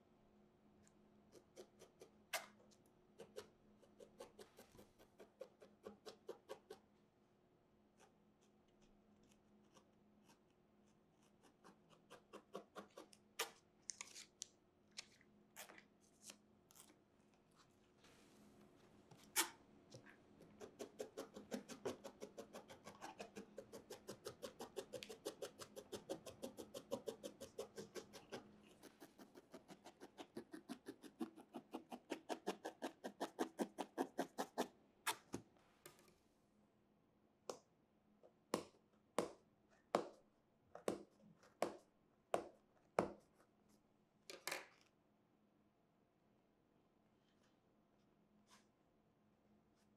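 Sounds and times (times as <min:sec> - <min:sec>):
felting needle poking wool: 0:01.3 - 0:06.8, 0:07.9 - 0:13.6, 0:19.1 - 0:36.0.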